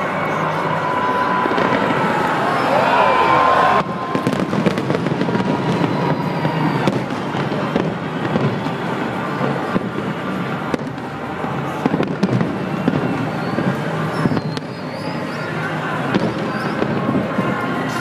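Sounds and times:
fireworks bursting and crackling: 0.0s - 18.0s.

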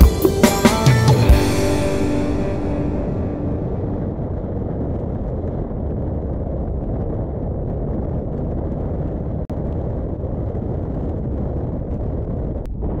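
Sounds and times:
engine and tyre noise: 3.1s - 10.2s
wind buffeting camera: 3.6s - 13.0s.

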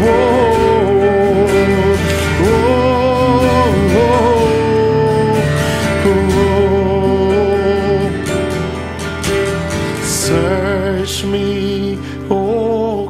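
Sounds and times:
man singing: 0.0s - 8.6s, 9.9s - 13.0s
strummed acoustic guitar: 0.0s - 13.0s.

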